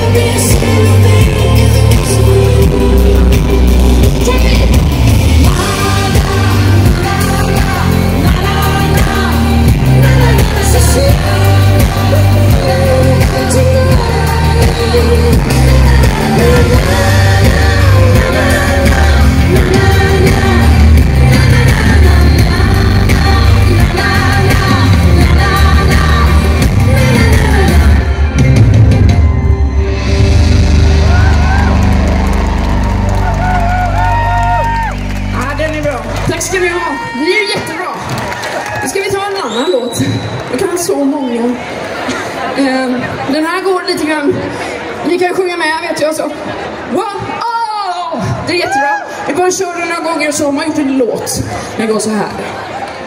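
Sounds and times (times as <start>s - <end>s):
woman singing into microphone: 0.0s - 3.9s, 5.3s - 28.4s
bass-heavy pop beat: 0.0s - 37.8s.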